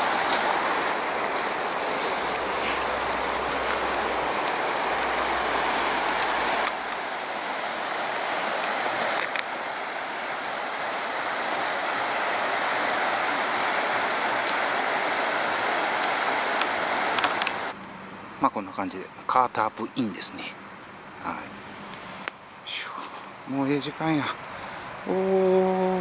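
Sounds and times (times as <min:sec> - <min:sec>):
river rushing over stones: 0:00.0 - 0:17.8.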